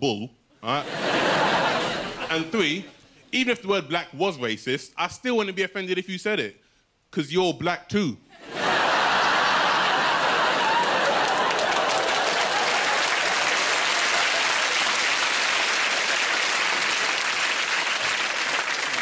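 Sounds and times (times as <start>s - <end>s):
audience applauding: 8.8s - 19.0s.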